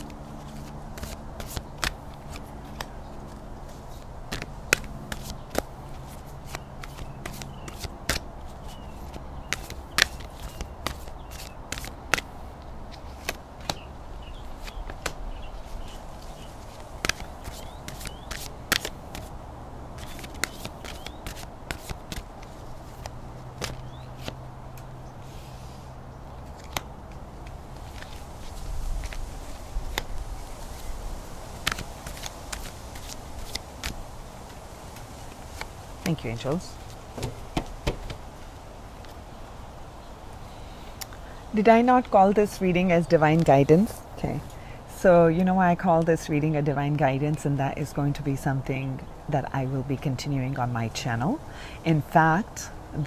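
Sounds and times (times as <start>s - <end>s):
cards being shuffled: 0.0s - 13.8s, 14.4s - 19.3s, 20.0s - 25.5s, 26.4s - 30.9s, 31.6s - 36.2s, 36.8s - 39.2s.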